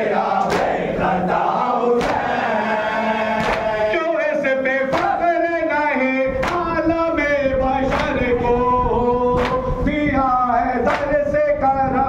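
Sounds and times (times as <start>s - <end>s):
crowd of men chanting: 0.0s - 7.1s, 7.7s - 8.5s
unison chest-beating strikes: 1.9s - 2.5s, 3.3s - 3.9s, 4.9s - 5.4s.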